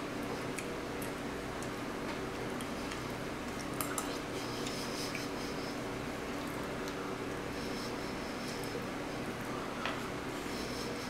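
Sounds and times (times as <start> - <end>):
steady low hum: 0.0 - 11.0
chewing clicks and smacks: 0.5 - 5.3.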